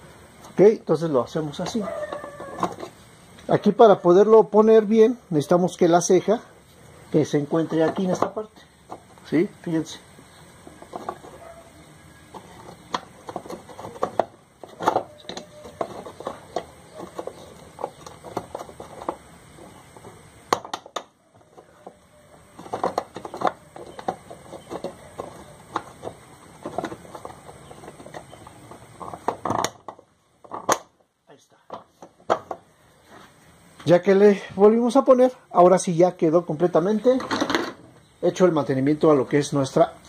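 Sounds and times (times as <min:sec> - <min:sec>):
hard plastic clicking and scraping: 0:10.6 - 0:11.5, 0:12.3 - 0:22.0, 0:22.6 - 0:30.9.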